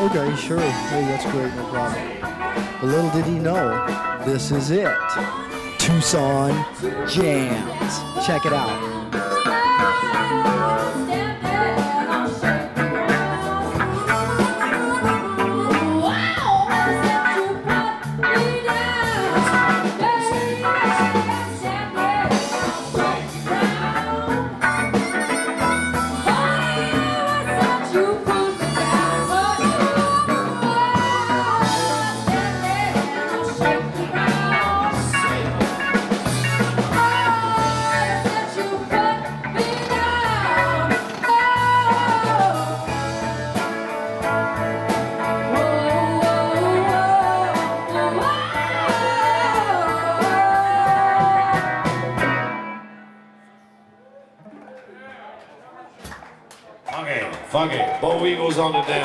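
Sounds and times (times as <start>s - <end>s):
person singing: 0.0s - 35.7s
bass and drum backing: 0.0s - 52.6s
blues guitar: 0.0s - 53.7s.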